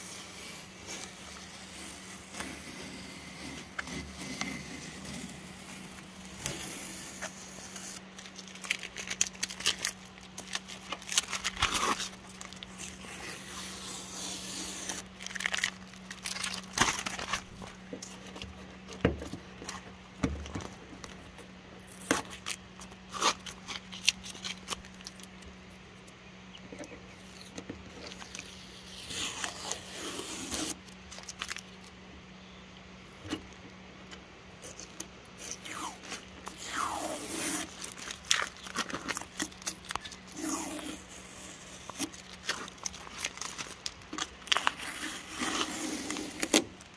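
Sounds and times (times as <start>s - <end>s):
masking tape peeling off: 0.0s - 19.0s, 21.8s - 25.5s, 27.1s - 31.9s, 34.6s - 46.9s
tape crumpling in hand: 5.8s - 19.0s, 21.8s - 25.6s, 27.2s - 32.0s, 34.6s - 46.9s.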